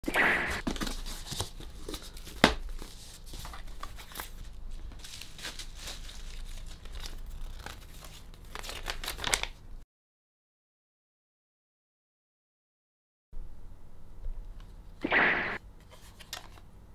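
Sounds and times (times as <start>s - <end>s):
paper rustling and crinkling: 0.6s - 9.6s, 15.8s - 16.6s
sharp knock: 15.0s - 15.6s.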